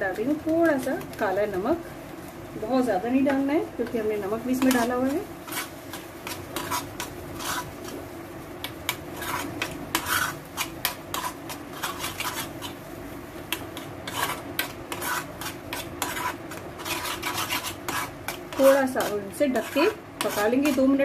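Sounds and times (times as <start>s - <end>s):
metal spoon scraping a pan: 3.3s - 8.0s, 8.6s - 12.8s, 13.5s - 21.0s.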